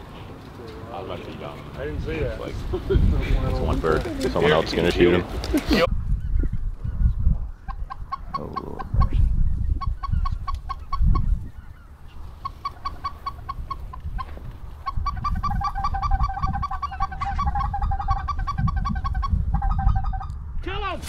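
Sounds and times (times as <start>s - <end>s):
wind rumble on microphone: 1.6s - 21.0s
geese yelping calls: 7.6s - 9.2s, 9.8s - 20.4s.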